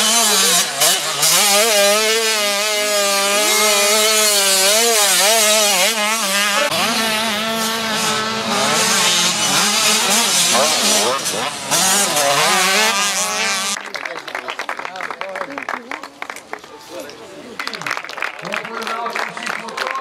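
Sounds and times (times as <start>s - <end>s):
motocross engine revving: 0.0s - 13.8s.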